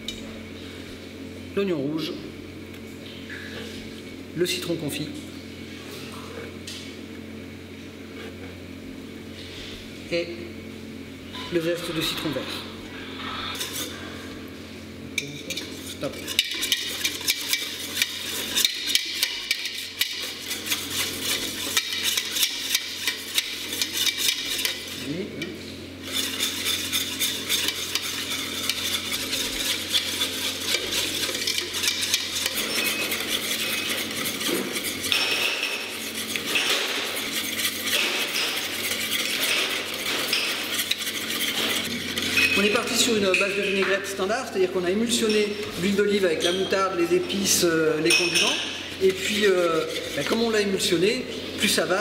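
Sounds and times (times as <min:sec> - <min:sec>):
wire whisk beating in metal bowl: 0:15.2 - 0:44.0, 0:45.0 - 0:51.2.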